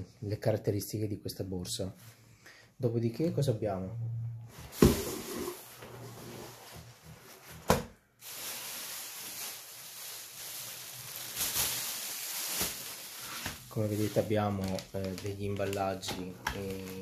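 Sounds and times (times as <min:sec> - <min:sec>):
plastic packaging crinkling: 0:08.2 - 0:17.0.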